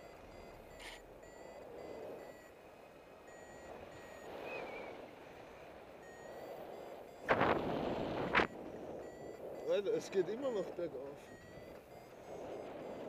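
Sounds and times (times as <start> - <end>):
variometer high beeps: 0.0 - 2.6, 3.2 - 4.9, 6.0 - 13.0
wind on microphone: 3.7 - 10.4.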